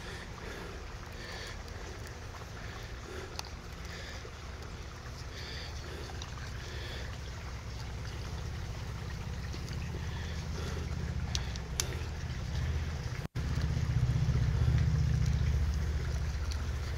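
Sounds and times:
low rumble: 7.4 - 16.9.

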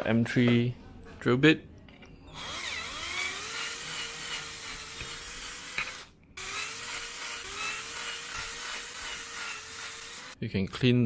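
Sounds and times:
cordless drill whining: 2.3 - 10.4.

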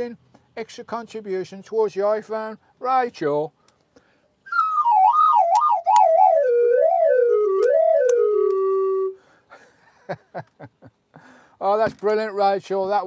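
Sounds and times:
wobbling whistle-like tone: 4.5 - 9.2.

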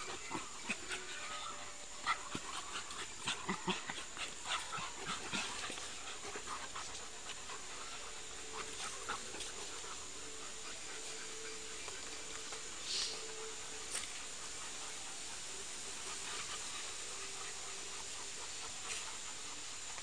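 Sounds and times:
dogs panting: 0.0 - 20.0.

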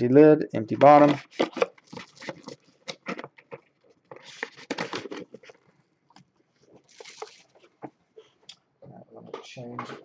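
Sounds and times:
plastic wrapping crinkling: 0.9 - 5.7, 6.6 - 7.9.

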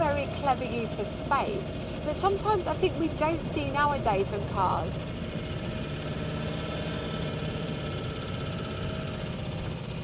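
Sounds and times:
car engine running: 0.0 - 10.0.

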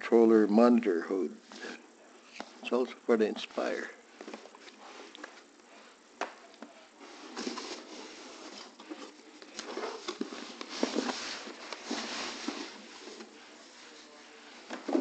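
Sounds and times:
cardboard rustling and scraping: 7.0 - 15.0.

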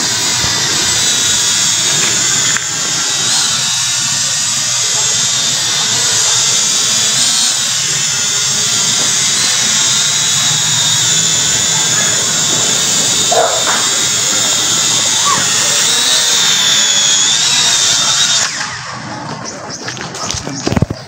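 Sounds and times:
drone propellers whining: 0.0 - 21.0.

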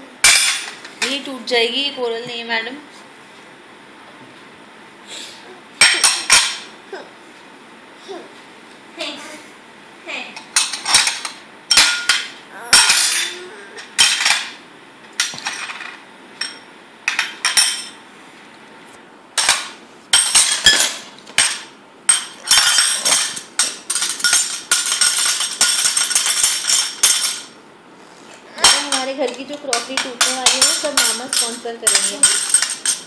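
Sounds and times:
glass bowl clinking on dishes: 29.7 - 33.0.

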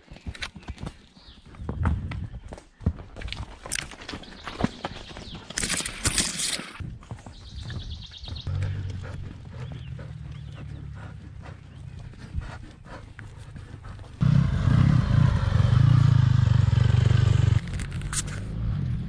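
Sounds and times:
horse hooves and tack clicking: 0.0 - 14.2.

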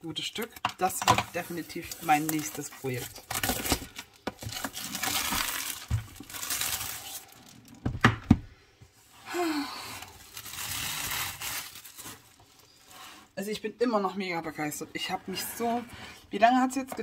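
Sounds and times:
shrink-wrap crinkling: 0.2 - 7.9, 9.5 - 13.4.

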